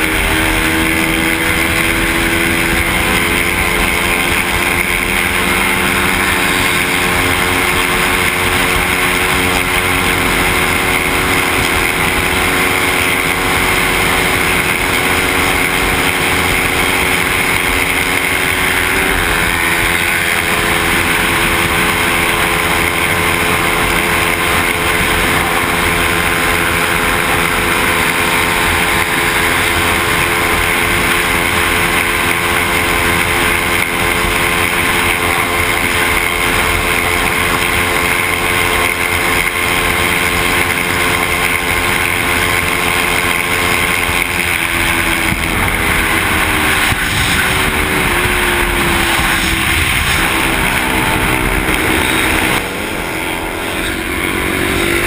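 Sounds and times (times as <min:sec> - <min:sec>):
motorcycle engine cruising: 0:00.0 - 0:55.0
wind rush over microphone: 0:44.6 - 0:53.6.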